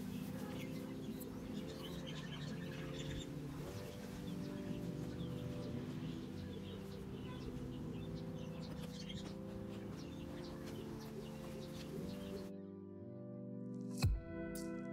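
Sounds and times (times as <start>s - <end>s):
small birds chirping faintly: 0.0s - 12.7s
soft music of sustained chords: 0.0s - 14.9s.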